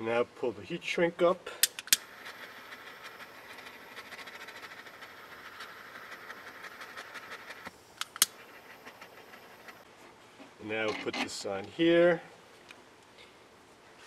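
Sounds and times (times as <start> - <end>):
sharp clicks: 1.6 - 9.8
butane torch hissing: 1.9 - 9.6.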